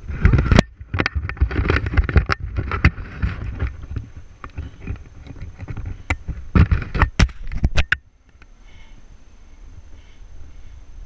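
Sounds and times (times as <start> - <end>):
knocks and scrapes on branches: 0.0 - 8.5
leaves rustling: 0.0 - 11.0
wind rumbling on microphone: 0.0 - 11.0.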